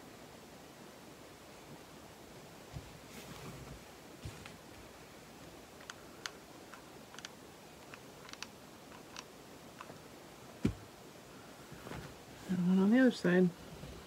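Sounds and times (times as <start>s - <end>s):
dull thump: 10.6s - 10.9s.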